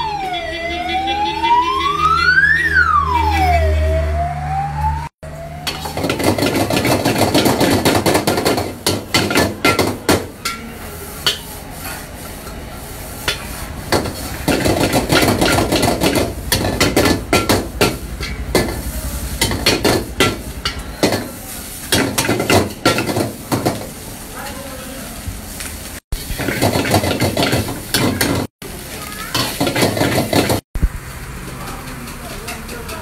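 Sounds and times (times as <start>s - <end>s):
metal ladle clanging on a wok: 5.7s - 11.6s, 13.2s - 23.8s
rice rasping in a wok: 5.8s - 33.0s.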